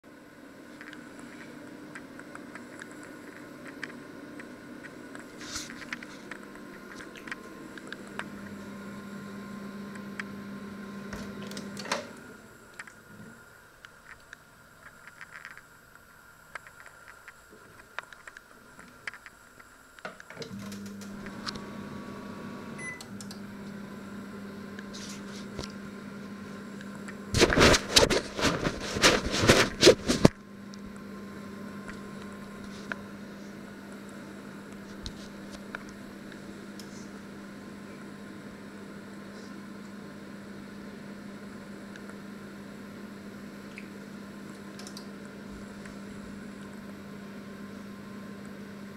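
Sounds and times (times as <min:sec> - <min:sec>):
microwave oven humming: 0:00.0 - 0:16.6, 0:17.4 - 0:48.9.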